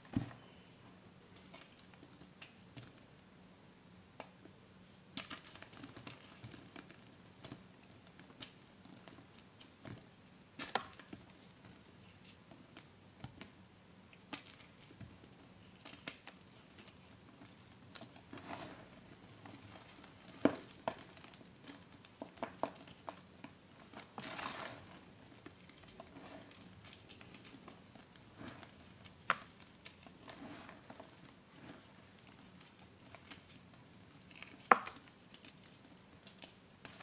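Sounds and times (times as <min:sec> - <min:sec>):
powder sifting hiss: 0:17.6 - 0:20.8, 0:23.5 - 0:34.0.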